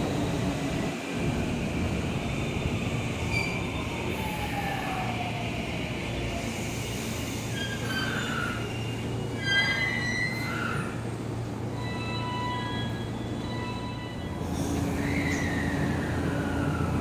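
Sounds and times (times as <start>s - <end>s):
train rumbling: 0.0s - 17.0s
brief high squeal: 3.3s - 3.6s, 7.4s - 11.0s, 11.7s - 16.7s.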